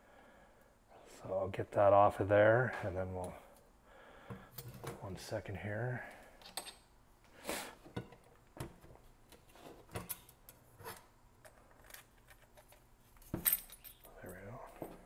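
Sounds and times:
metal parts clinking on wood: 11.8s - 15.0s.

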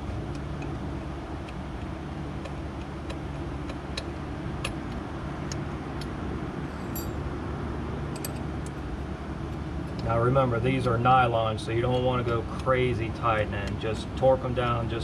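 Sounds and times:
low background rumble: 0.0s - 15.0s
light metallic clicks of bolts: 8.1s - 8.8s.

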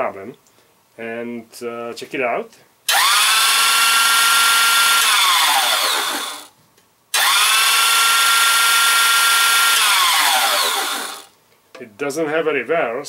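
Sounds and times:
meat grinder motor whining: 2.9s - 6.5s, 7.2s - 11.3s.

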